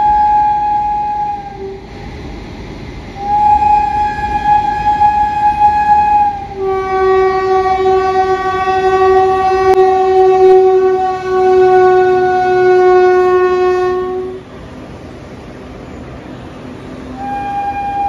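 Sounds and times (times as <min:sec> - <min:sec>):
locomotive air horn blast: 0:00.0 - 0:02.0, 0:03.2 - 0:14.5, 0:17.1 - 0:18.0
train running noise: 0:00.0 - 0:18.0.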